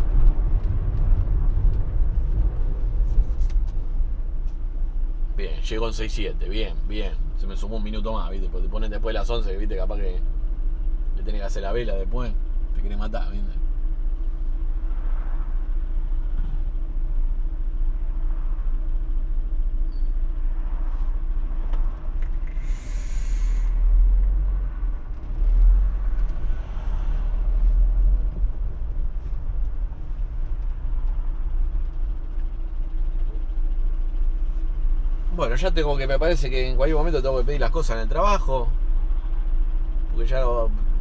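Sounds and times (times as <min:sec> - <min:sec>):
bus engine rumbling: 0:00.0 - 0:41.0
van engine rumble: 0:00.0 - 0:41.0
air brake hiss: 0:22.5 - 0:23.9.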